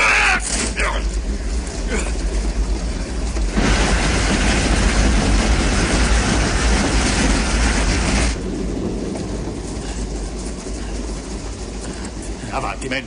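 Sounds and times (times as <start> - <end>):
train rushing at speed: 0.0 - 13.0.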